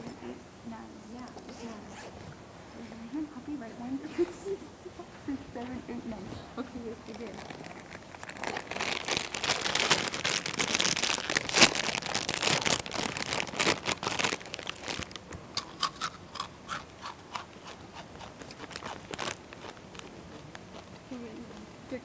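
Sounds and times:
foil snack bag crinkling: 0:07.0 - 0:21.3
chips crunching: 0:07.1 - 0:21.1.

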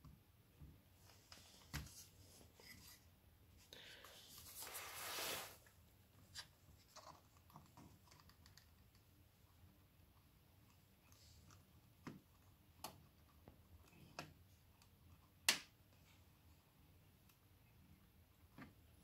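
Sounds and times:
rustling scrape: 0:04.1 - 0:05.7.

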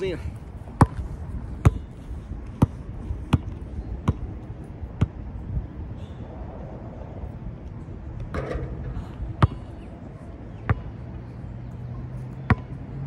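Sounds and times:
basketball bouncing: 0:08.3 - 0:09.8, 0:10.7 - 0:10.9.

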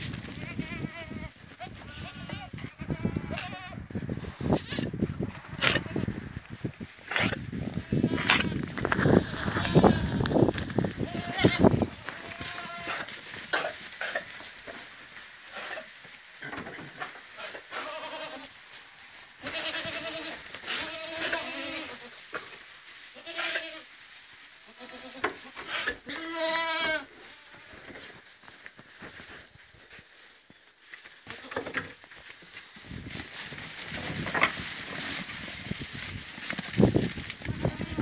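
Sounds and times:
goats bleating: 0:00.3 - 0:03.8, 0:07.8 - 0:10.4, 0:11.0 - 0:13.1, 0:17.4 - 0:18.5, 0:19.4 - 0:22.1, 0:23.2 - 0:23.9, 0:24.7 - 0:27.7, 0:37.4 - 0:38.0.

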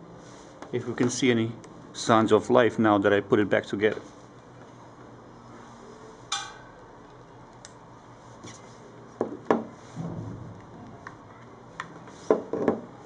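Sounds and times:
soft low rumble: 0:10.0 - 0:11.7.

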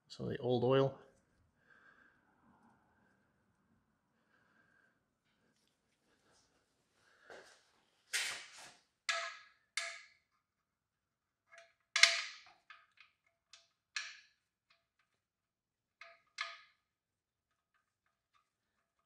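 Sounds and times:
metal bolt clicking and clinking: 0:09.1 - 0:10.2, 0:11.5 - 0:15.1, 0:16.0 - 0:16.9.

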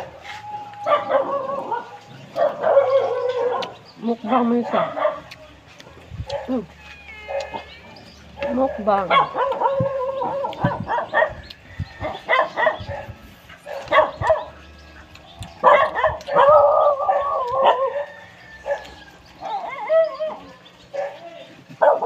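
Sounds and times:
dog whining cry: 0:00.0 - 0:03.6, 0:06.8 - 0:08.0
dog barking: 0:00.8 - 0:05.4, 0:06.2 - 0:06.6, 0:07.2 - 0:07.6, 0:08.4 - 0:11.4, 0:12.0 - 0:14.5, 0:15.6 - 0:22.0.

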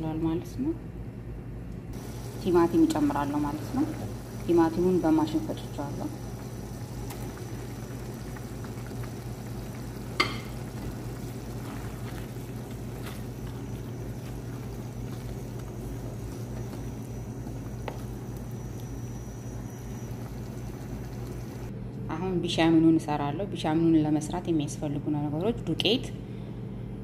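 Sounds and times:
meat sizzling in a pan: 0:02.0 - 0:21.7.

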